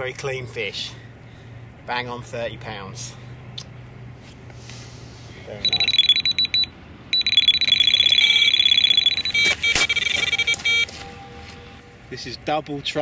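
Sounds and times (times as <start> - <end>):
high-pitched bite alarm beeps: 5.6 - 10.9.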